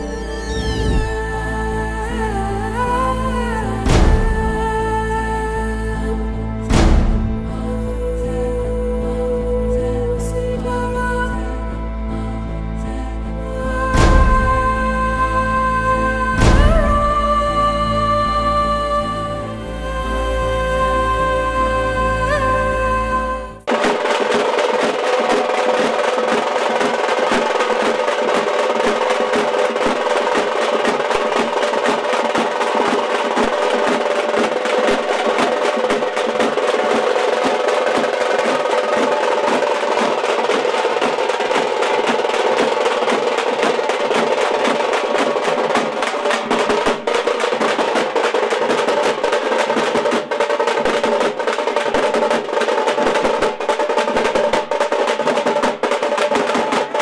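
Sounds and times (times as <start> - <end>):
frame drums beaten with sticks: 3.8 - 4.8, 6.7 - 7.7, 14.0 - 14.8, 16.4 - 17.2, 23.7 - 57.0.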